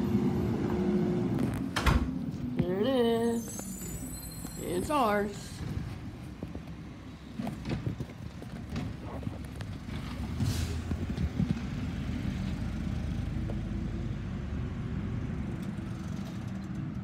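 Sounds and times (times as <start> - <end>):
air brakes hissing: 10.4 - 10.9.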